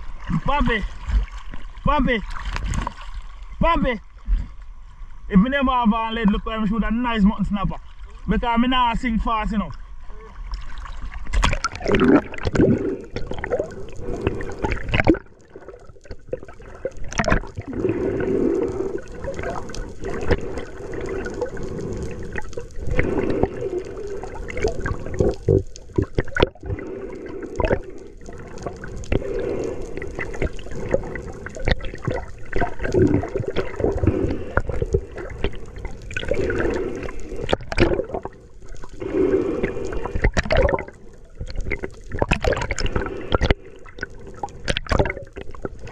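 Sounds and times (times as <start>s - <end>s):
water bubbling and splashing: 0.0s - 4.5s, 7.1s - 45.9s
water sloshing and gurgling: 0.0s - 45.9s.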